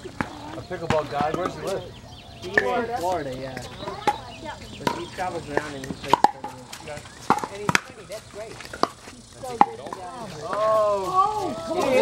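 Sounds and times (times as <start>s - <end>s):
paddles hitting plastic ball: 4.8s - 10.8s.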